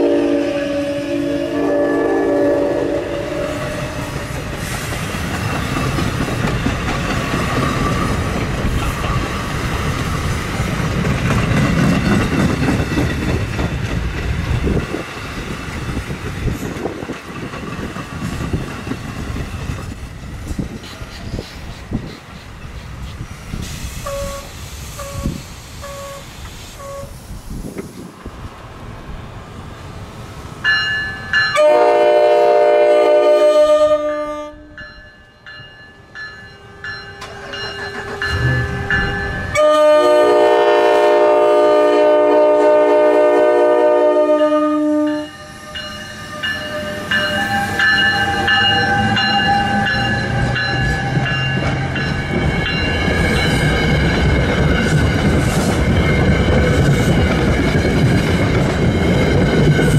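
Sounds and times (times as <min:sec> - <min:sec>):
train horn blasts: 0:00.0 - 0:04.2, 0:24.0 - 0:27.1, 0:31.5 - 0:34.8, 0:38.2 - 0:51.5
rail rumble and wheel clatter: 0:00.0 - 0:59.9
train rolling past: 0:00.0 - 0:59.9.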